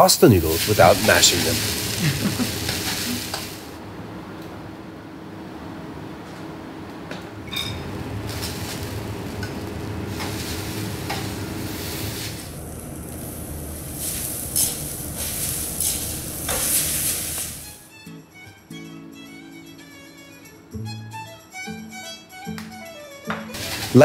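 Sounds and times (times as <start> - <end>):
noodles sizzling in hot oil: 0.0 - 3.8, 7.8 - 17.8, 23.6 - 24.0.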